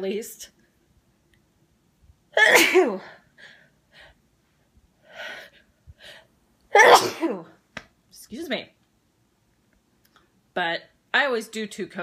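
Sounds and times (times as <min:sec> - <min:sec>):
woman sneezing: 0:02.4 - 0:03.1, 0:06.8 - 0:07.5.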